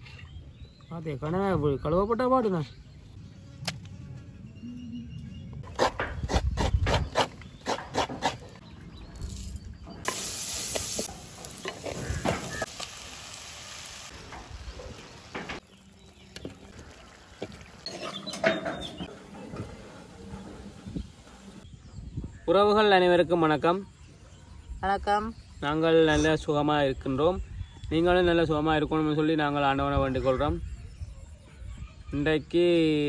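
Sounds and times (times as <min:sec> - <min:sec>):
food sizzling in a clay pot: 0:10.0 - 0:18.3.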